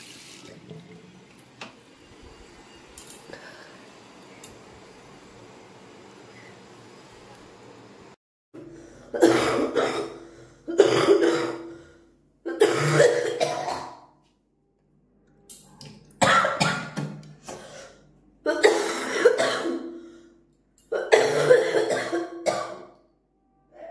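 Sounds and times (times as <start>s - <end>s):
person coughing and hawking: 9.1s - 11.7s, 12.5s - 14.1s, 18.5s - 19.9s, 20.9s - 22.8s.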